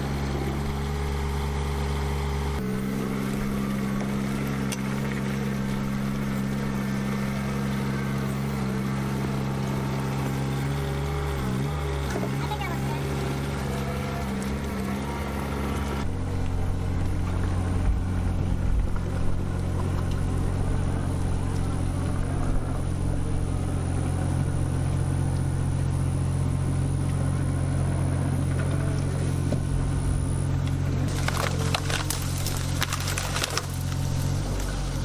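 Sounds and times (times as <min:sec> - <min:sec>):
excavator diesel engine running: 0:00.0 - 0:35.0
branches crackling and snapping: 0:30.5 - 0:35.0.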